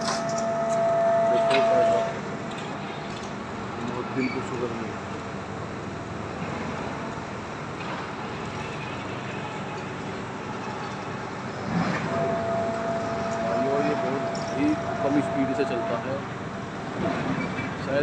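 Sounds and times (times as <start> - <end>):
thin steady whine: 0.0 - 6.2, 11.2 - 18.0
machinery rumbling: 0.0 - 18.0.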